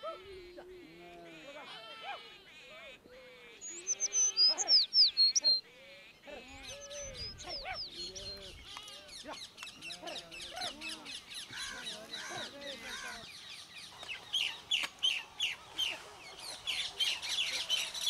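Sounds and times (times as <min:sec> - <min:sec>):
sheep and goats bleating: 0:00.0 - 0:04.8, 0:05.4 - 0:13.4
birds chirping: 0:00.0 - 0:18.0.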